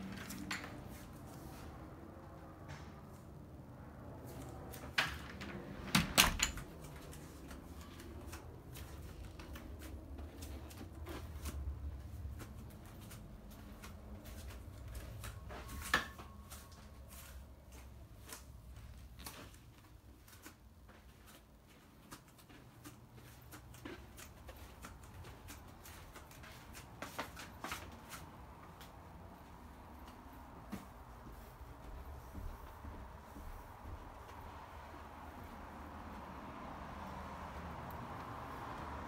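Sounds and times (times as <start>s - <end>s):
footsteps walking through rooms: 0.0s - 39.0s
door clattering: 4.9s - 6.8s.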